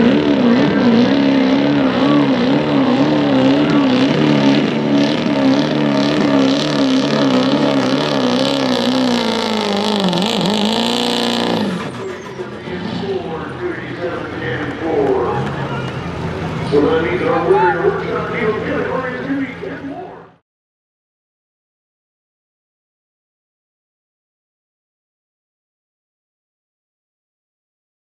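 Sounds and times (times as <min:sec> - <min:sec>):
diesel truck engine at full throttle: 0:00.0 - 0:20.4.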